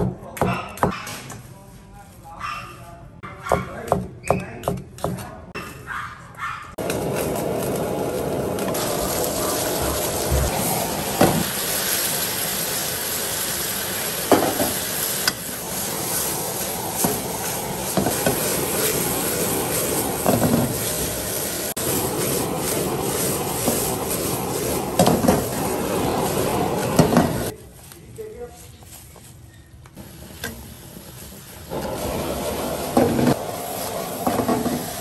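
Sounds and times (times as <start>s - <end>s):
fish pieces sizzling in a wok: 6.8s - 27.5s, 30.0s - 35.0s.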